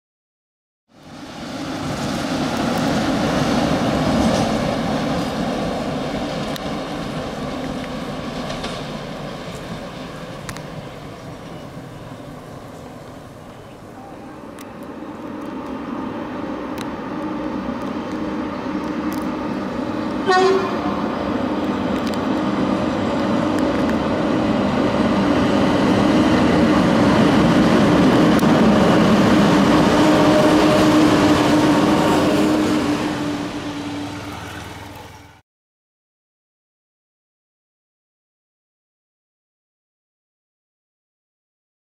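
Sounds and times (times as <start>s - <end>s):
wheels rumbling on rail: 0.9s - 35.4s
locomotive humming: 1.0s - 35.4s
train horn blast: 20.2s - 21.1s, 29.8s - 34.8s.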